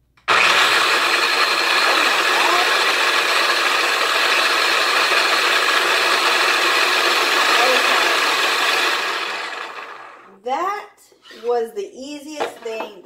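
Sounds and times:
food processor motor whirring: 0.2 - 10.3.

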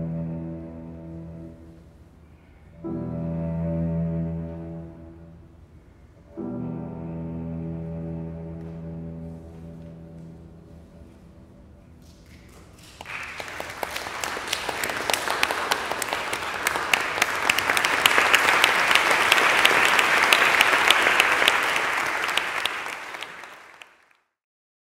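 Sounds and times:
audience applauding: 12.0 - 24.2.

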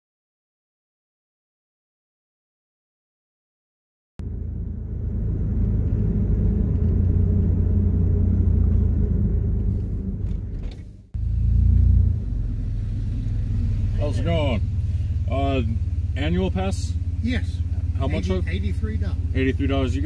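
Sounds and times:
van engine rumble: 4.2 - 20.0.

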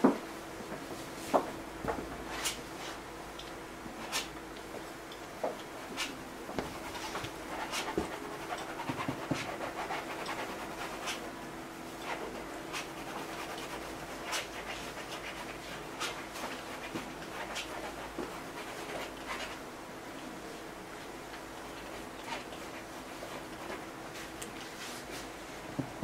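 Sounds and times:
faint steady hum: 0.0 - 26.0
paintbrush brushing on canvas: 6.6 - 11.3.

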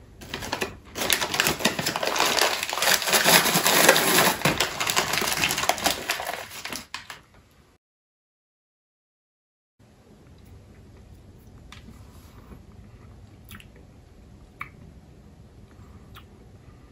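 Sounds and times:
plastic candy bag rustling: 0.2 - 7.3.

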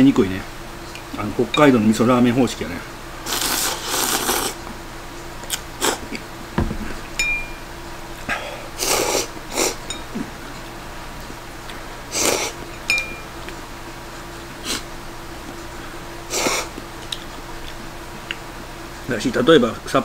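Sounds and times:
person slurping noodles: 3.3 - 4.6, 5.8 - 6.0, 8.8 - 9.8, 12.1 - 12.6, 16.3 - 16.7
chopsticks clinking on bowl: 12.9 - 13.6.

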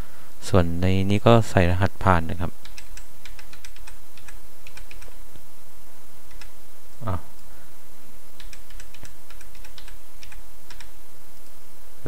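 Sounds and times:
keyboard keys typing: 2.6 - 5.2, 6.3 - 6.6, 8.4 - 11.0
short vocal sound: 7.0 - 7.4.

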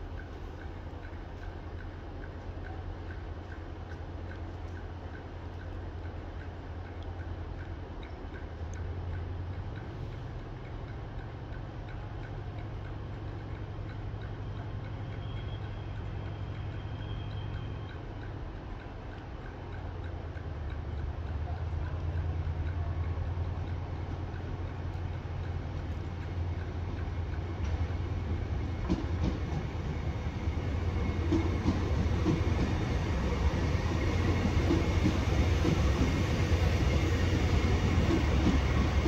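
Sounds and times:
light ticking: 0.0 - 39.0
diesel locomotives idling: 8.5 - 39.0.

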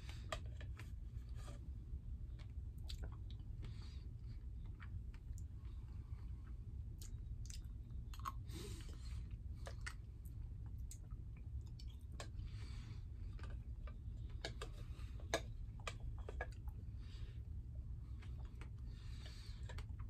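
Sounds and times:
steady low hum: 0.0 - 20.0
wet chewing: 2.3 - 16.8.

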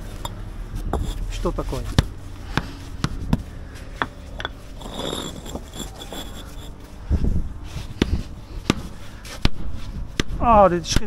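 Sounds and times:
scraping and rubbing: 0.0 - 10.1
low thuds: 1.8 - 10.4.

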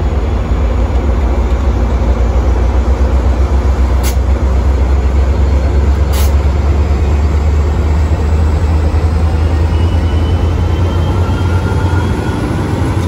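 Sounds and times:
diesel locomotive engines droning: 0.0 - 13.0
air hiss: 6.1 - 6.4.

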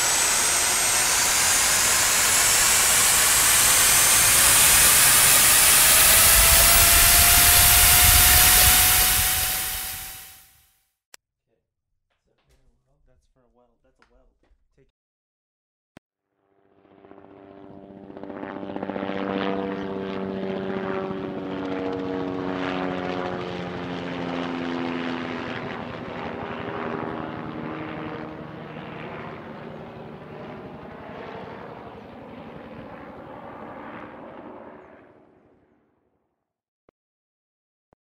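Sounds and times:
aircraft engine drone flying past: 0.0 - 10.5, 16.7 - 35.4.

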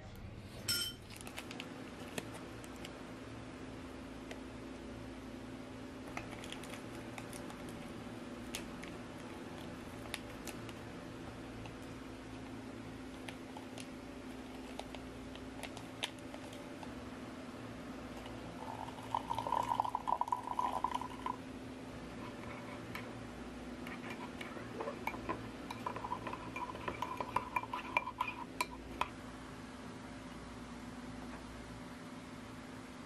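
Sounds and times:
spoon stirring and clinking in mug: 0.6 - 1.0, 18.6 - 21.4, 23.9 - 29.1
hot water pouring into mug: 18.5 - 21.4.

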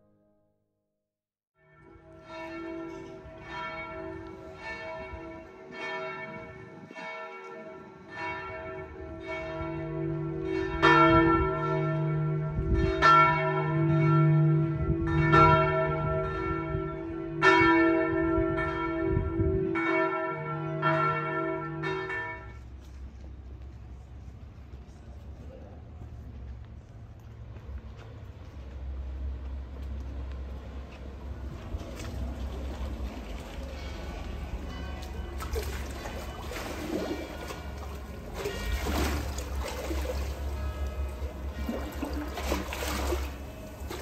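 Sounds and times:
church bells ringing: 1.6 - 23.0, 33.0 - 44.0.

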